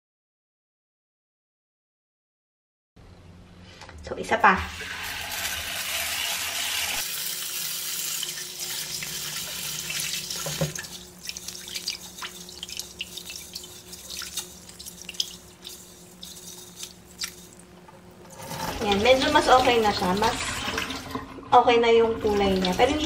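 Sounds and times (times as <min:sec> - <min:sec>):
tap water running into pot: 0:04.7 - 0:21.4, 0:22.2 - 0:23.0
hands swishing grains in water: 0:11.1 - 0:17.7.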